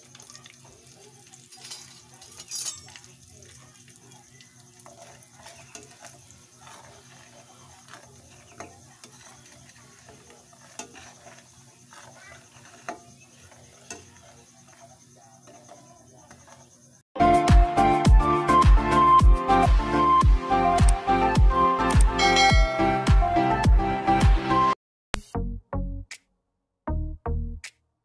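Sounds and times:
spoon and fork whisking batter: 0.0 - 17.0
light clinks against a pan: 1.4 - 3.2
music: 17.2 - 26.3, 26.9 - 27.8.

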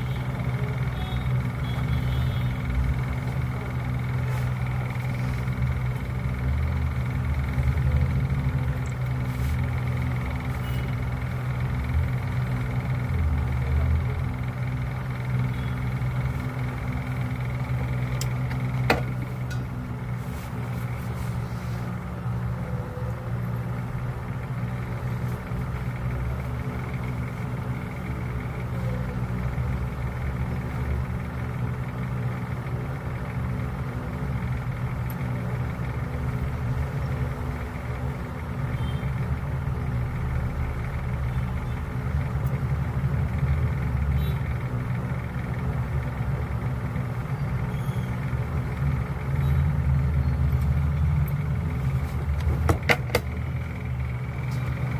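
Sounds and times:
hot air gun blower humming: 0.0 - 54.9.

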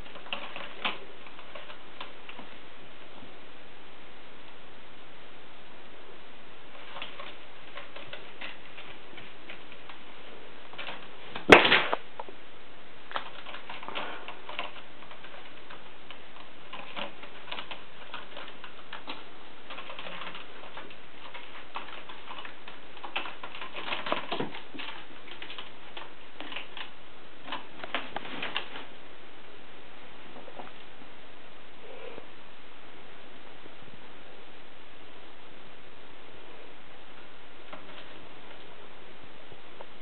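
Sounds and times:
kitten claws scratching and tapping: 13.1 - 28.9.

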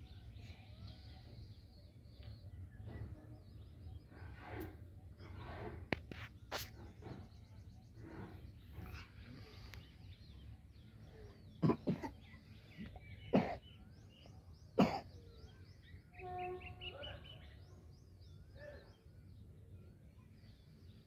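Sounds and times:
small birds chirping: 0.0 - 21.0
person coughing: 11.6 - 12.2, 14.8 - 15.1.

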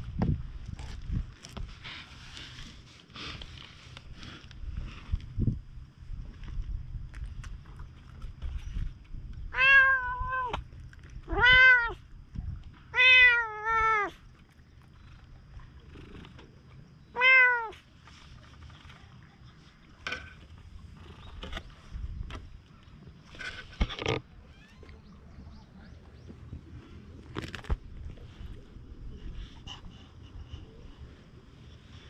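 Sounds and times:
cat meowing: 9.5 - 10.6, 11.3 - 12.0, 12.9 - 14.2, 17.1 - 17.8.

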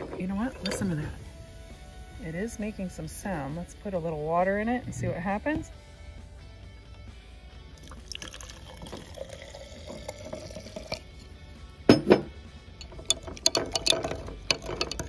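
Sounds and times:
water pouring into a jar: 7.8 - 11.3, 12.8 - 15.0
metal spoon clinking on glass: 12.8 - 15.0.

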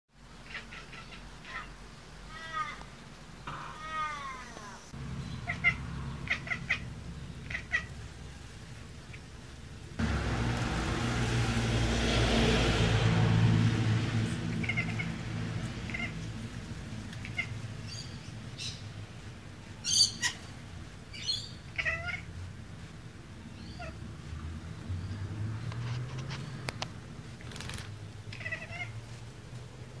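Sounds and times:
low rumble and hiss: 0.2 - 12.3, 13.0 - 25.2
cat chirping and chattering: 0.4 - 1.7, 3.5 - 8.0, 14.5 - 15.2, 15.8 - 16.2, 17.2 - 18.1, 21.1 - 22.3, 28.3 - 29.0.

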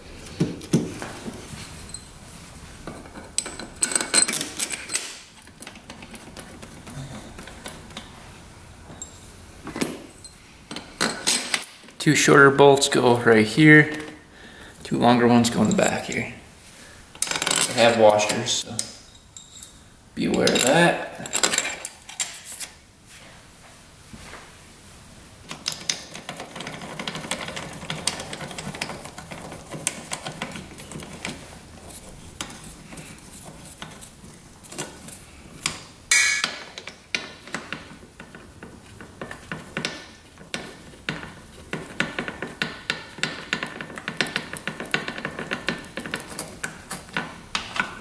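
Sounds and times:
hand tools clinking on metal: 15.4 - 16.3, 17.2 - 22.6, 36.1 - 37.0
sharp metallic knock: 36.1 - 36.6.

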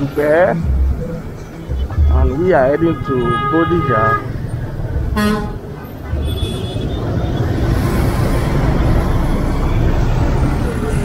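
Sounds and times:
road noise: 0.0 - 11.0
vehicle horn toot: 2.7 - 4.3, 5.2 - 7.0.

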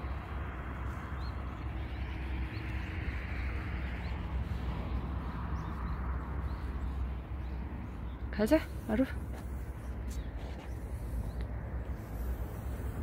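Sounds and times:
outdoor noise: 0.0 - 13.0
wind buffeting microphone: 0.0 - 13.0.

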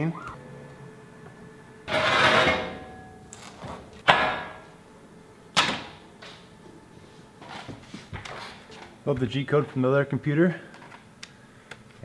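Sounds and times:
steel plate scraping and rattling: 1.9 - 2.8
steel plate clanking: 1.9 - 3.1.

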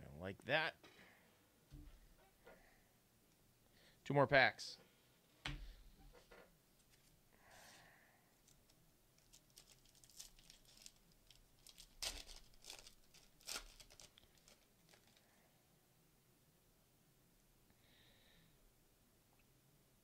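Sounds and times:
foil wrapper crinkling: 8.4 - 15.3
foil ripping: 9.2 - 15.2.

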